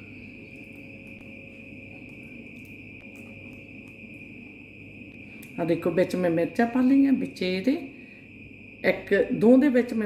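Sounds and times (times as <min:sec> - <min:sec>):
high-pitched insect trill: 0:00.0 - 0:10.0.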